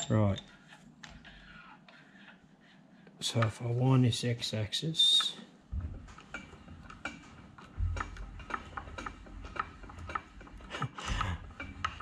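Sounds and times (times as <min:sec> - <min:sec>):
mechanical ticking of hand-wound table: 0:05.8 - 0:12.0.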